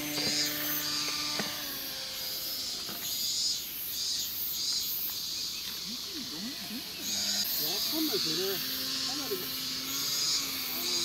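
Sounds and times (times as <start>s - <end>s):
model plane motor tone: 0.0s - 3.8s, 6.2s - 11.0s
insects chirping in pulses: 0.0s - 11.0s.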